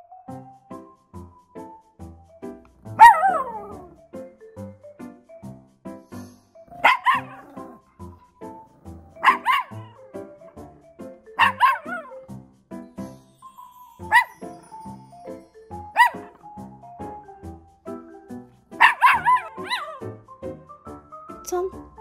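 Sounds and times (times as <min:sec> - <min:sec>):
small dog barking: 0:03.0 - 0:04.0, 0:06.7 - 0:07.8, 0:09.2 - 0:10.0, 0:11.4 - 0:12.1, 0:14.1 - 0:14.6, 0:16.0 - 0:16.4, 0:18.8 - 0:20.0.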